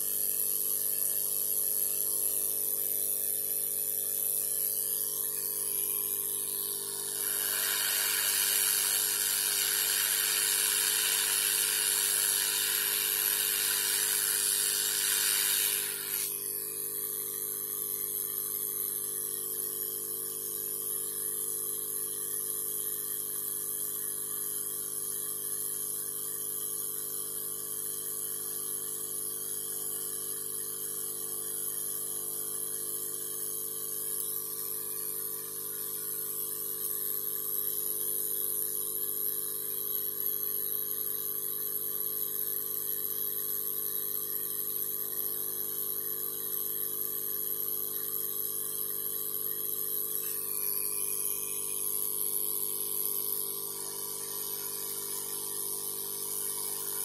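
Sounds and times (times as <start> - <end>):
loud steady hiss: 7.1 - 16.4.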